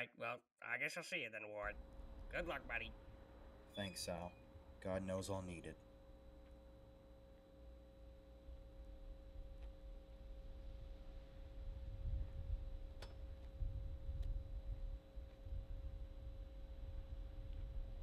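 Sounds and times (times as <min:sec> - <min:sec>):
pure held tone: 0:03.6 - 0:04.7.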